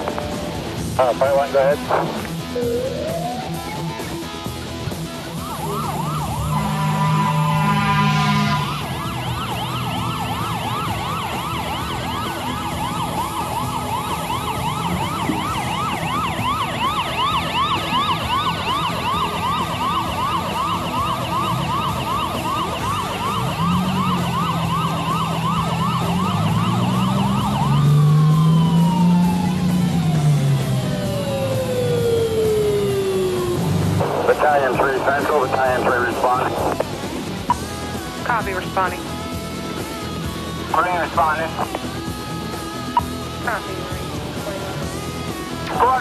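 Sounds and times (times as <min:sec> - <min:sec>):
fire engine siren yelping: 0:00.0 - 0:46.0
horn blast: 0:05.9 - 0:09.1.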